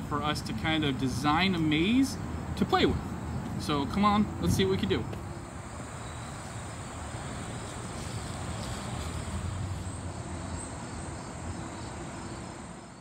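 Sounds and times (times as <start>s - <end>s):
crickets trilling: 4.4s - 13.0s.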